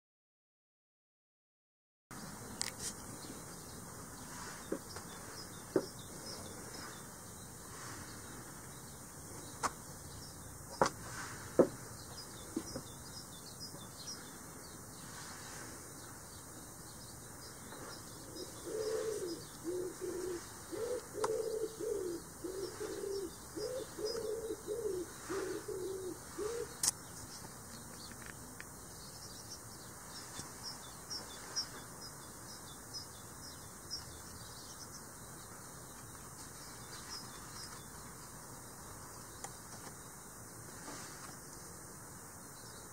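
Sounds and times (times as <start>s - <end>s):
small birds chirping: 2.2s - 42.9s
dove cooing: 18.2s - 26.8s.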